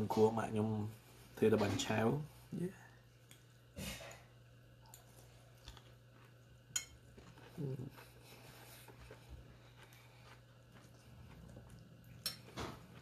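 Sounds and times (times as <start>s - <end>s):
faint chewing: 2.9s - 13.0s
person humming: 7.6s - 7.9s
fork clinking against bowl: 12.2s - 12.5s.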